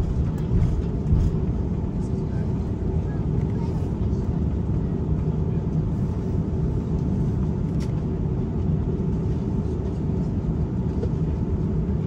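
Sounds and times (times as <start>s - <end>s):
jet engines idling low rumble: 0.0s - 12.0s.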